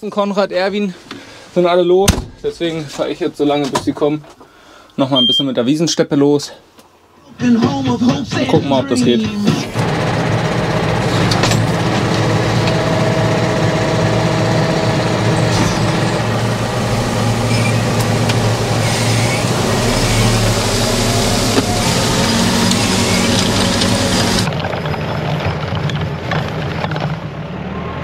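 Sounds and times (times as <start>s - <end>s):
tractor diesel engine: 8.7s - 27.5s.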